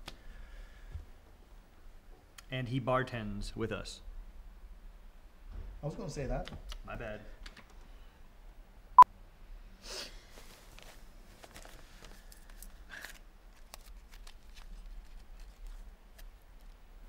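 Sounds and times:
cigarette pack rustling: 0:10.4 - 0:16.8.

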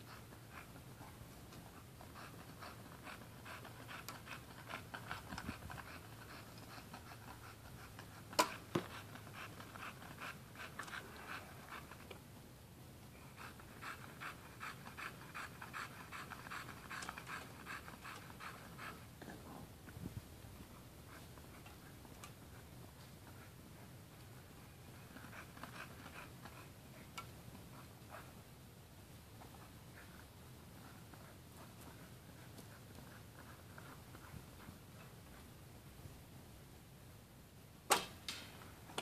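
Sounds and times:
dog panting hard: 0:00.0 - 0:12.1, 0:13.2 - 0:19.2, 0:20.6 - 0:28.5, 0:29.4 - 0:35.6
sharp snap: 0:37.9 - 0:39.0.

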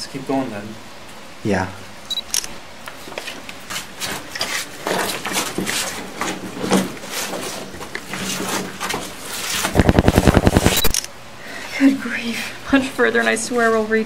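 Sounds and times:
fast even clicks: 0:09.8 - 0:11.1.

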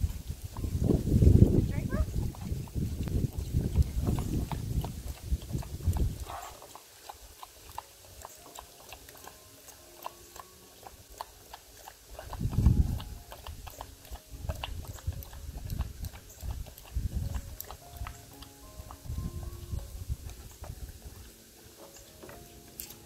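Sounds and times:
dogs lapping and chewing: 0:00.0 - 0:23.0.

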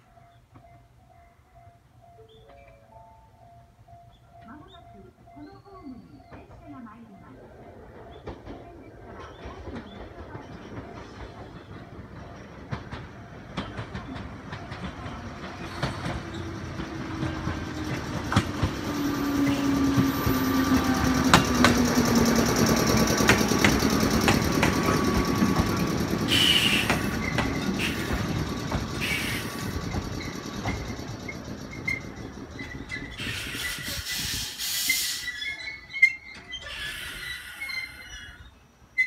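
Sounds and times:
low electric train hum: 0:00.0 - 0:39.0
train wheels clacking over rail joints: 0:07.9 - 0:35.2
short hisses of air: 0:33.2 - 0:35.2.

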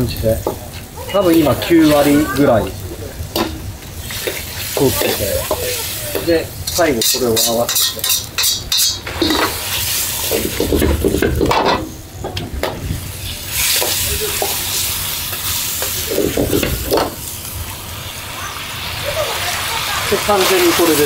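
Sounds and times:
food sizzling in hot oil: 0:00.0 - 0:21.0
metal ladle scraping wok: 0:00.7 - 0:05.9, 0:06.6 - 0:12.0.

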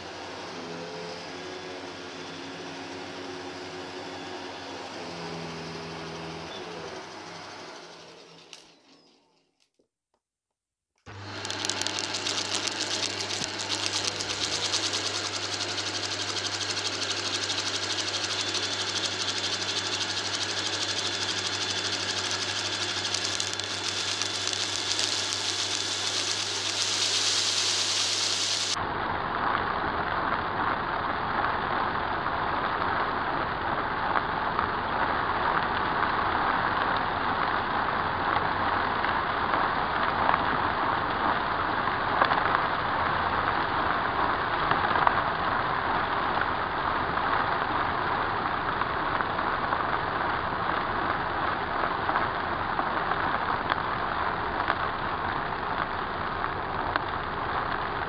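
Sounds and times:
vacuum cleaner running: 0:00.0 - 0:09.0, 0:11.1 - 0:28.8.

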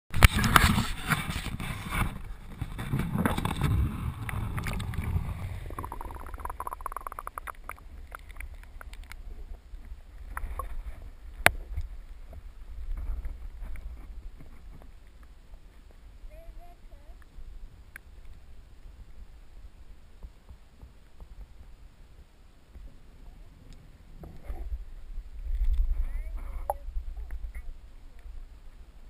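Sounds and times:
water splashing against camera: 0:00.1 - 0:15.2
muffled underwater rumble: 0:00.2 - 0:17.8, 0:22.8 - 0:29.0
faint clicks: 0:05.7 - 0:09.2.

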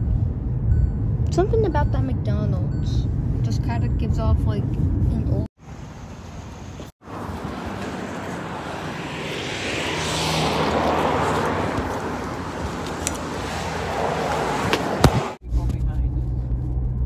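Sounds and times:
vehicle passing: 0:05.6 - 0:15.4.

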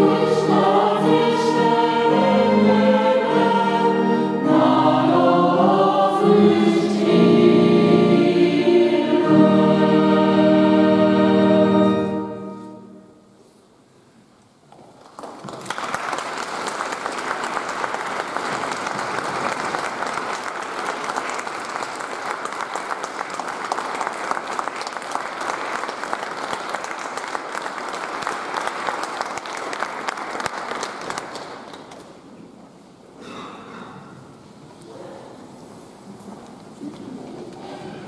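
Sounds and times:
audience applauding: 0:14.8 - 0:32.3.

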